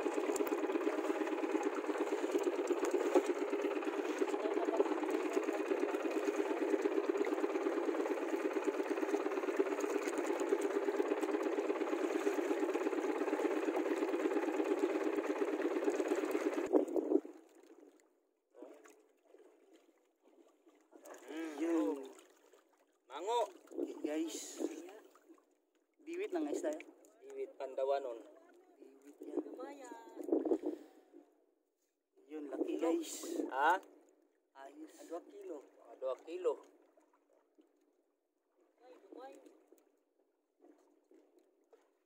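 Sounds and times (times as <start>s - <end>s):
small boat engine running: 0.0s - 31.6s, 32.3s - 42.0s.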